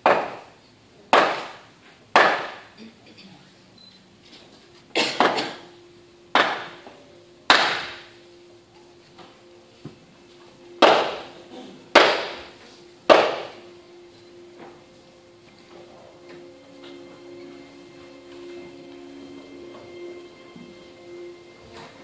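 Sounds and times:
loud hammer blows echoing: 0:01.1 - 0:02.7, 0:06.3 - 0:08.3, 0:10.7 - 0:14.8.

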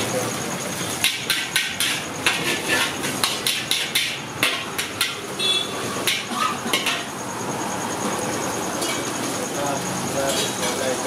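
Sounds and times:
metal spatula striking a wok: 0:01.0 - 0:07.2.

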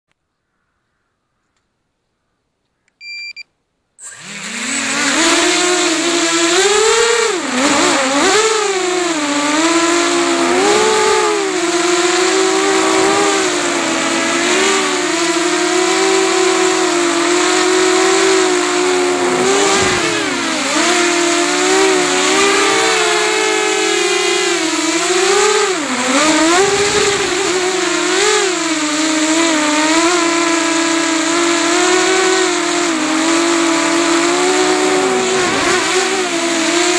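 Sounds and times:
short electronic beep: 0:03.0 - 0:03.5
drone motors whining: 0:04.0 - 0:36.9.

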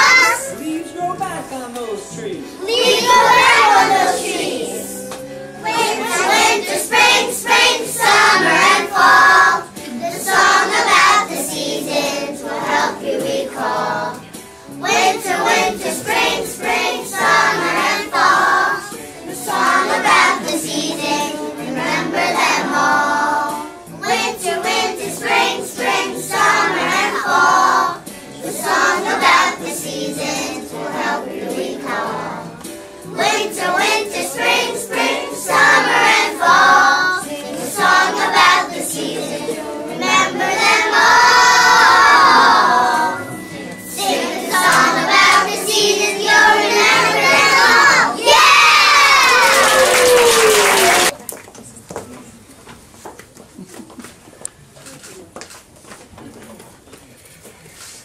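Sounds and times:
children singing in unison: 0:00.0 - 0:00.5, 0:02.6 - 0:14.2, 0:14.8 - 0:32.5, 0:33.1 - 0:49.6.

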